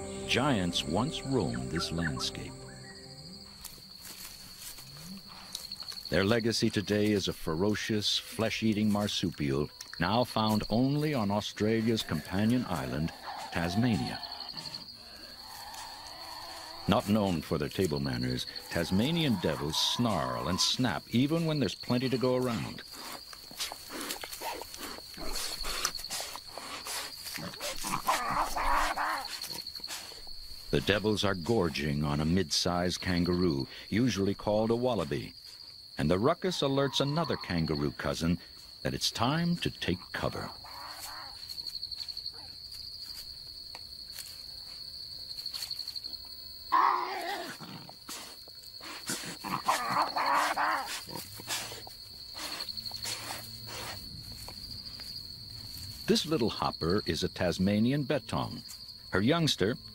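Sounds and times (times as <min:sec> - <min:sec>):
cricket trill: 0:00.0 - 0:59.9
animals snarling: 0:12.1 - 0:17.4, 0:18.2 - 0:20.8, 0:22.4 - 0:30.3, 0:40.5 - 0:41.4, 0:46.7 - 0:54.0
animal growling snarl: 0:49.0 - 0:53.5.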